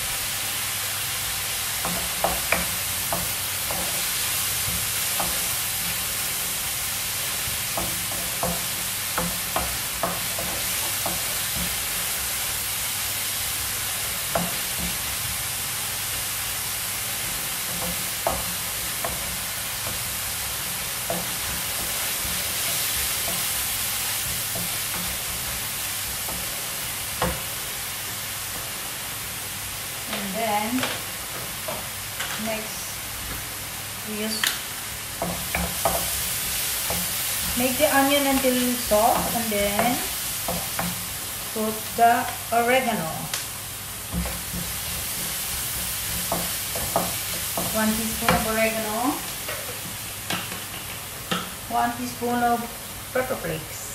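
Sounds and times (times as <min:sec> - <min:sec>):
onion sizzling in frying pan: 0:00.0 - 0:53.9
spatula knocking against pan: 0:01.8 - 0:03.9, 0:07.7 - 0:11.8, 0:17.7 - 0:20.0, 0:35.2 - 0:36.1.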